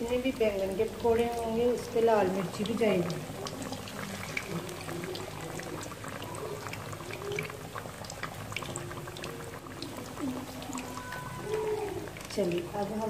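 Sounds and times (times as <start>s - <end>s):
food deep-frying in hot oil: 0.0s - 13.0s.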